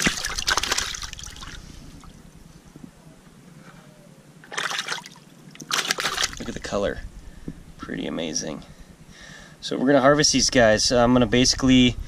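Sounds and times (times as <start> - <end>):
water splashing in plastic bucket: 0.0 - 1.6, 4.5 - 6.6.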